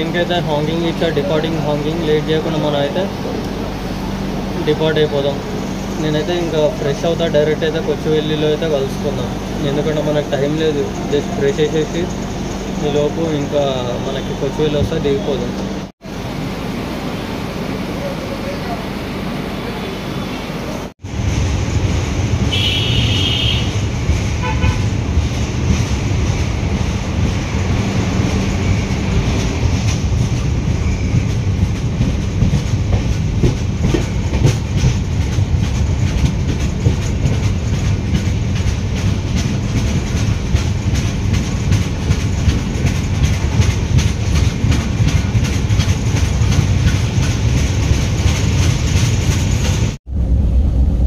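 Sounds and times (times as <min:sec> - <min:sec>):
train wheels rumbling on rails: 0:00.0 - 0:51.0
train horn toot: 0:22.5 - 0:23.8, 0:24.4 - 0:24.9.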